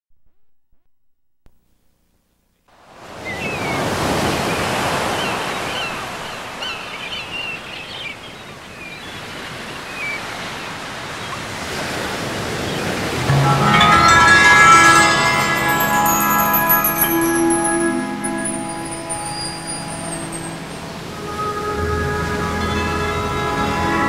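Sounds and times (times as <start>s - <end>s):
ocean waves and surf: 2.8s - 24.0s
high chirping calls: 13.4s - 21.1s.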